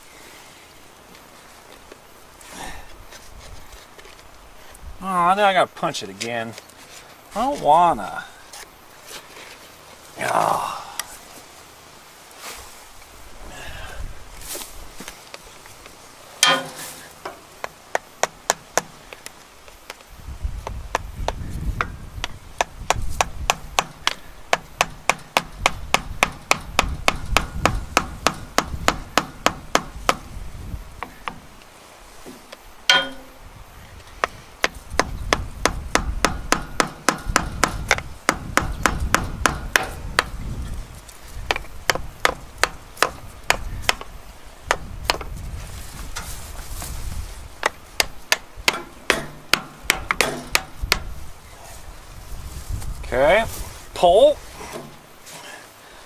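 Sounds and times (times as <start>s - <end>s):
hammer blows on metal: 16.4s - 17.4s, 22.6s - 30.4s, 32.9s - 33.5s, 34.2s - 40.7s, 48.0s - 51.2s.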